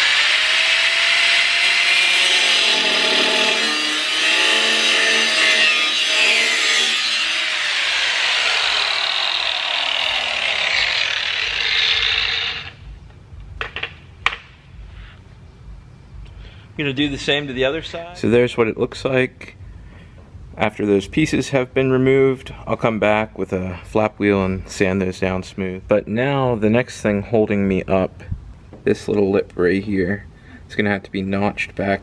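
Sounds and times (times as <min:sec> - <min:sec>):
angle grinder cutting metal: 0:00.0 - 0:12.9.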